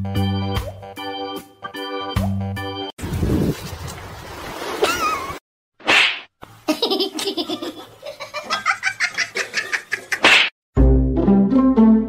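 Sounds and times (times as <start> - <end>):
person laughing: 4.8 - 5.4, 6.7 - 10.3.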